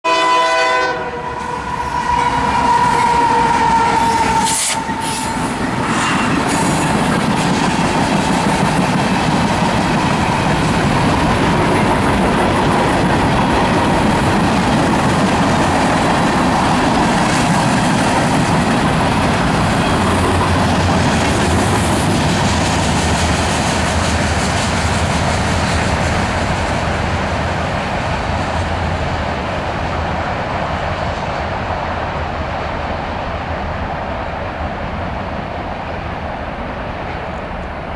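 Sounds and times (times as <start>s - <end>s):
locomotive horn: 0.0s - 6.4s
train wheels rumbling and clacking: 1.1s - 37.9s.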